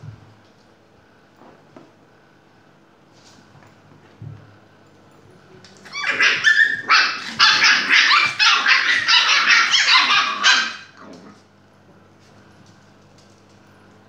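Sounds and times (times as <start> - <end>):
puppies barking and yapping: 5.8 - 11.0.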